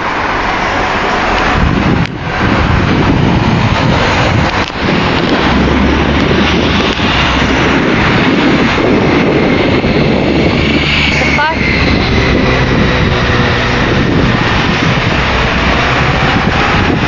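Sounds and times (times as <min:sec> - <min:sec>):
propane burner rushing: 0:00.0 - 0:17.0.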